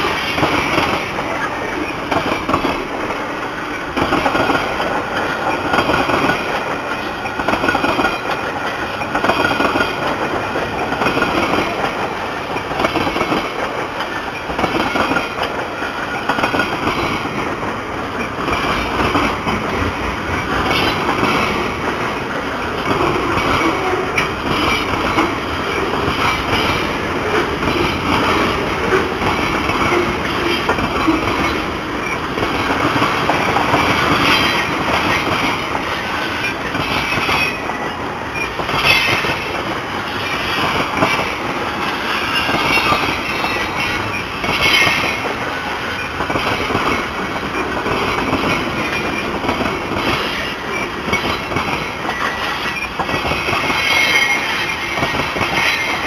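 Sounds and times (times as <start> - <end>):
freight train wheels rolling: 0.0 - 56.0
train wheels squealing: 34.0 - 35.3, 35.9 - 45.3, 50.0 - 56.0.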